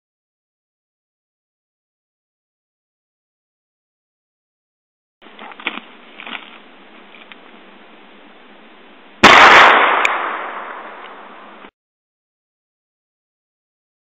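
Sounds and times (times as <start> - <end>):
revolver gunshot echoing: 9.2 - 11.5.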